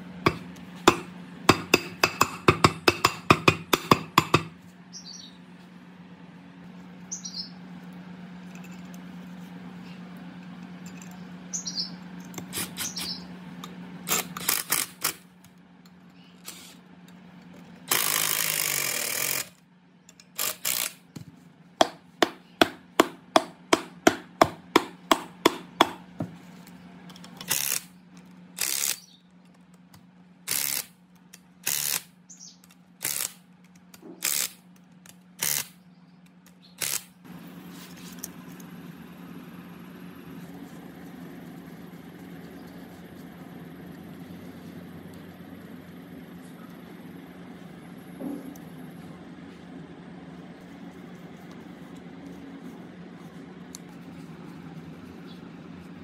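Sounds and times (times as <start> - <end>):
impact driver running: 14.0 - 15.3, 17.9 - 19.6, 20.4 - 21.2, 28.6 - 29.0, 30.5 - 31.0, 31.6 - 32.1, 33.0 - 33.4, 34.1 - 34.6, 35.4 - 35.8, 36.8 - 37.1.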